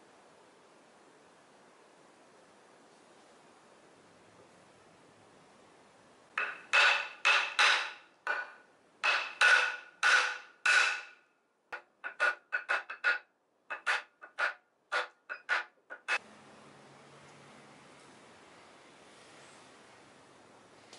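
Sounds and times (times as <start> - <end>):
hammer striking wood: 6.4 - 11.2.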